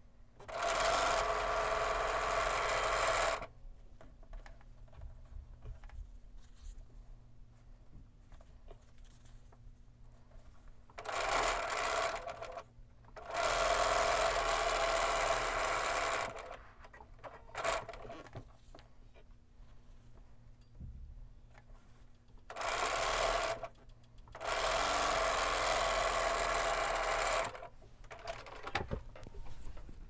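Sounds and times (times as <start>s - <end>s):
sewing machine stitching: 0.4s - 3.5s, 11.0s - 18.4s, 22.5s - 29.3s
fabric being handled: 5.2s - 10.9s.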